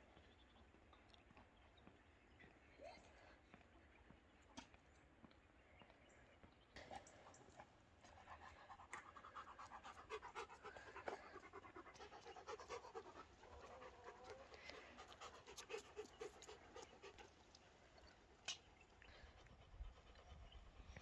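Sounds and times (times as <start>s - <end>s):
dog panting: 6.8s - 21.0s.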